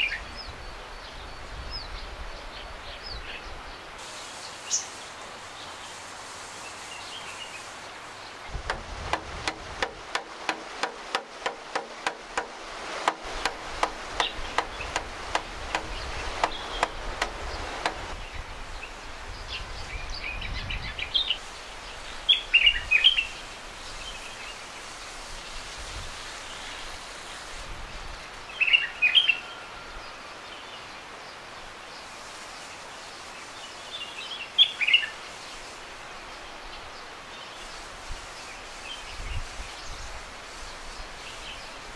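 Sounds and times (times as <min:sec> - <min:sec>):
songbird chirping: 0:00.0 - 0:24.8
wooden stick rapping on bucket: 0:08.6 - 0:18.2.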